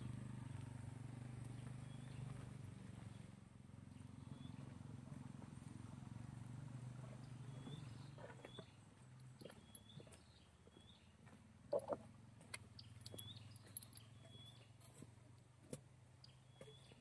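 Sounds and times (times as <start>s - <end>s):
small engine humming: 0.0s - 11.0s.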